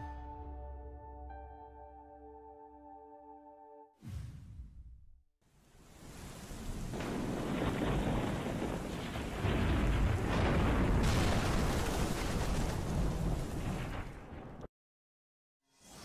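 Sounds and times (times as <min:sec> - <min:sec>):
rain rushing: 0:05.6 - 0:14.1
deep rumble of thunder: 0:06.9 - 0:14.7.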